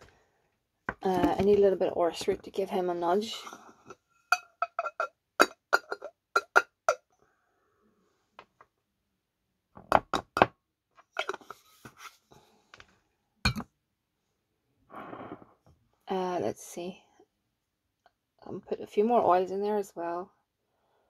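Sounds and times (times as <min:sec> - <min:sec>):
glass jars clinking: 0:04.3 - 0:07.0, 0:11.2 - 0:11.6.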